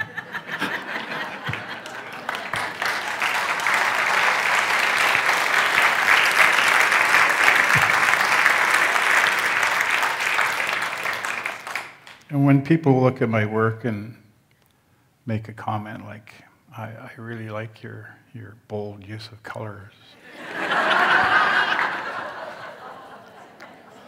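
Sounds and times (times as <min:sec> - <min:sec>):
audience applauding: 0:00.0 - 0:12.3, 0:20.4 - 0:24.0.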